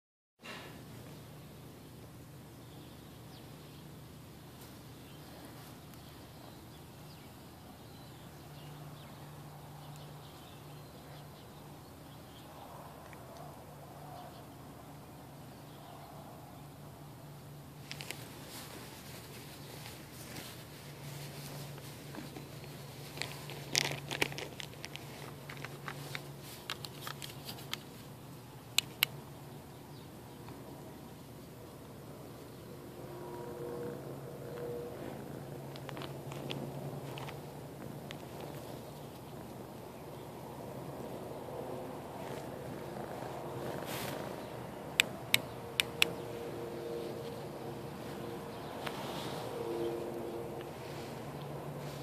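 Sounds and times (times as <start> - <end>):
faint low hum: 0.4 - 52.0
dry straw crackling and rustling: 17.8 - 28.2, 42.0 - 52.0
low hum: 29.0 - 52.0.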